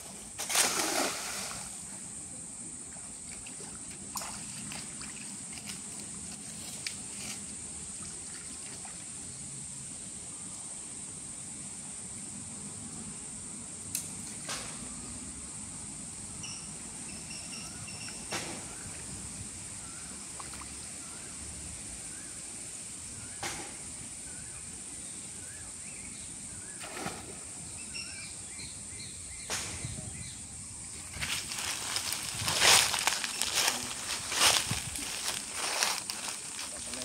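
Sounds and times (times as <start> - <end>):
splashes in shallow water: 0.4 - 1.8, 2.9 - 5.9, 26.8 - 27.6
high-pitched insect drone: 15.1 - 20.2.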